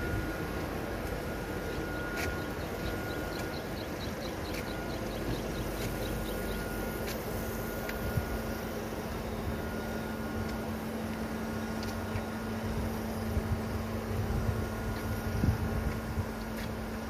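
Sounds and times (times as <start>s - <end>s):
drone propellers humming: 0.0s - 17.0s
footsteps on path: 0.5s - 8.2s, 10.4s - 12.4s, 14.9s - 17.0s.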